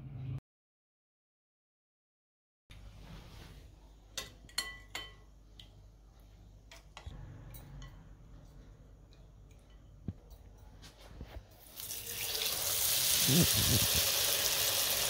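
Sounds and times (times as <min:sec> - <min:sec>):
utensils clinking against dishes: 0:04.2 - 0:05.3.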